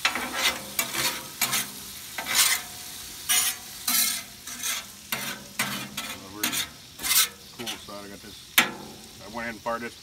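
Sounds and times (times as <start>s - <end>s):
metal spatula scraping griddle: 0.0s - 8.0s
meat sizzling on griddle: 0.0s - 10.0s.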